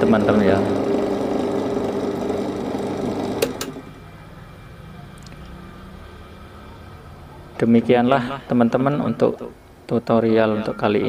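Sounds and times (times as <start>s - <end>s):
washing machine motor running: 0.0s - 4.0s.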